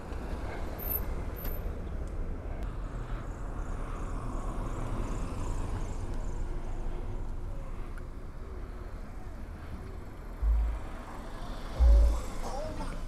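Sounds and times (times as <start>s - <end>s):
slow car traffic rumble: 0.0s - 13.0s.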